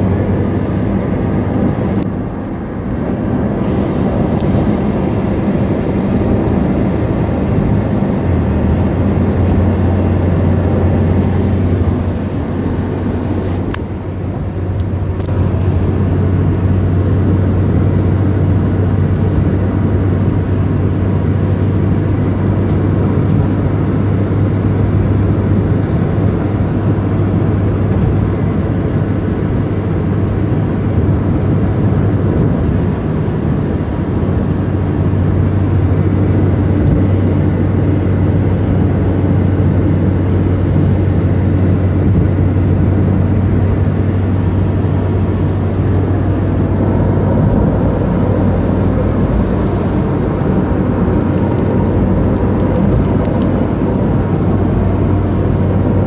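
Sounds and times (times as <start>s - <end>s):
car road noise rumble: 0.0s - 56.0s
rushing air hiss: 45.1s - 47.9s.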